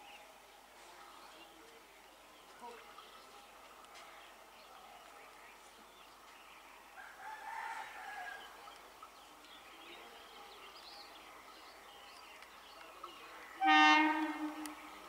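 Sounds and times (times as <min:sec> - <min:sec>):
birds chirping: 0:00.0 - 0:15.0
train horn blast: 0:13.6 - 0:15.0.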